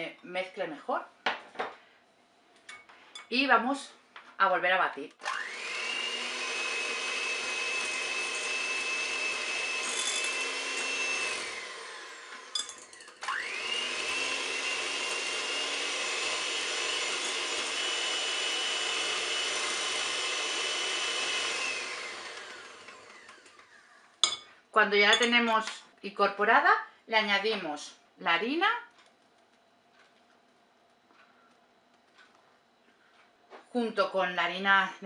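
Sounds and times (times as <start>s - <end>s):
electric hand mixer whining: 5.2s - 24.1s.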